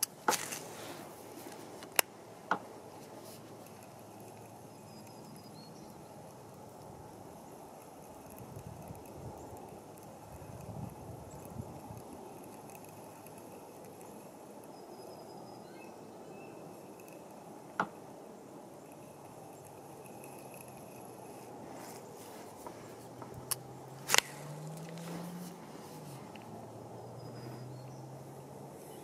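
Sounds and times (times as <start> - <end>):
distant bird or insect calls: 0.0 - 29.0
low outdoor hiss: 0.0 - 29.0.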